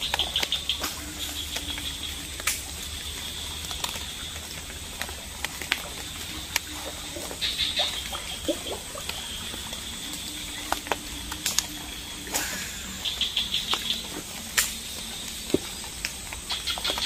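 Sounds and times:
faint high-pitched drone: 0:05.9 - 0:16.3.

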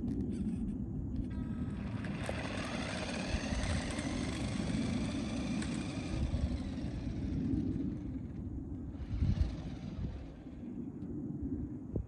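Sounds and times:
steady low rumble: 0:00.0 - 0:12.0
toy car electric motor whining: 0:01.2 - 0:10.8.

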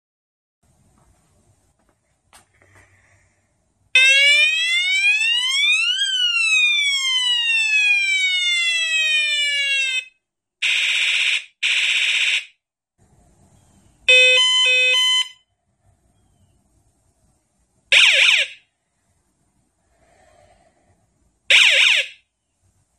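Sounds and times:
electronic siren wail: 0:04.0 - 0:12.5, 0:14.1 - 0:15.4, 0:17.9 - 0:18.6, 0:21.5 - 0:22.2.

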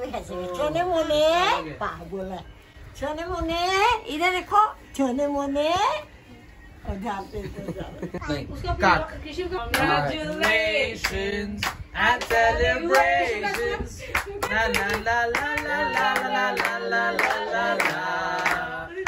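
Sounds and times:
people singing together: 0:09.4 - 0:19.0
hands clapping: 0:09.7 - 0:18.7.

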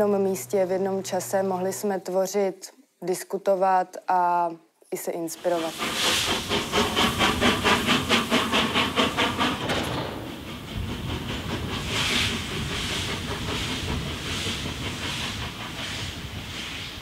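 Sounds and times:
soft steam hiss: 0:05.3 - 0:17.0
steam locomotive exhaust chuffing: 0:05.4 - 0:17.0.

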